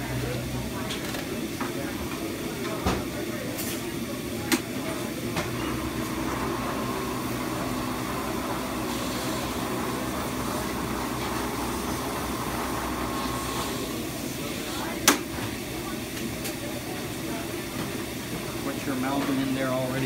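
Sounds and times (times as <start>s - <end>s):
machinery hum and hiss: 0.0s - 20.0s.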